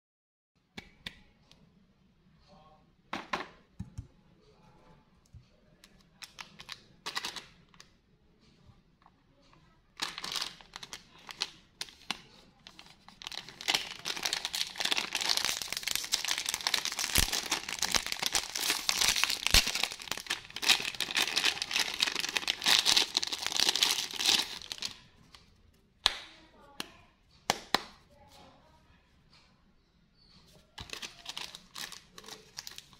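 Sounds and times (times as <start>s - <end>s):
plastic wrapper crinkling and tearing: 6.2s - 7.6s, 10.0s - 25.1s, 30.8s - 32.9s.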